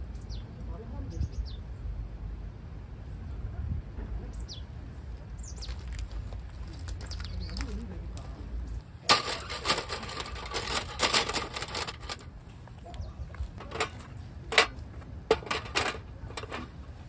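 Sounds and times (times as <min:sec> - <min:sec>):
small hard objects clattering: 0:09.0 - 0:12.3, 0:13.3 - 0:16.8.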